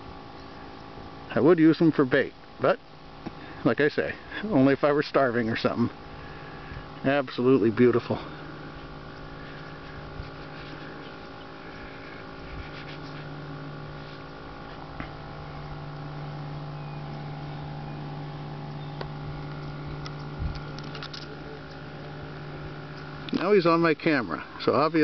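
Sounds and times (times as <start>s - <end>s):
low motor-like hum: 0.0s - 25.0s.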